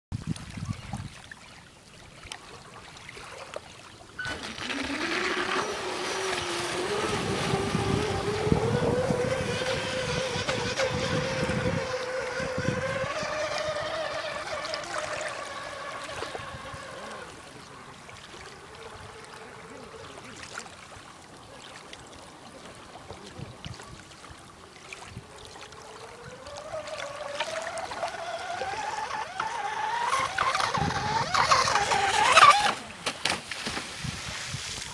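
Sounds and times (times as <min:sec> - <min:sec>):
model boat motor whining: 0:04.1 - 0:20.5, 0:25.1 - 0:33.1.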